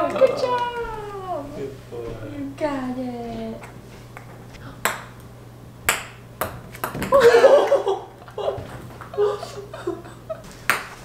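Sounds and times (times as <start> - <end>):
ping pong ball bouncing on floor: 3.6 - 5.2, 5.8 - 7.8
person laughing: 7.1 - 10.5.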